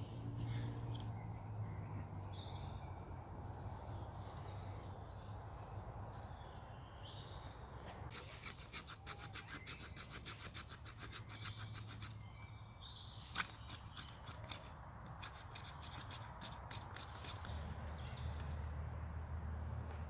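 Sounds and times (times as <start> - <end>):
birds calling: 0.0 - 18.5
knife blade scraping: 8.1 - 12.2.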